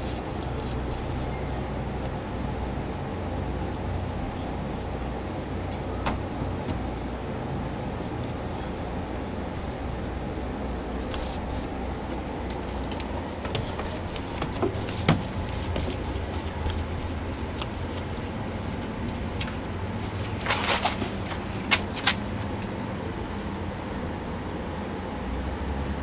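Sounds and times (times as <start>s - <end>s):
low background rumble: 0.0s - 26.0s
paintbrush scraping on door: 7.8s - 19.3s.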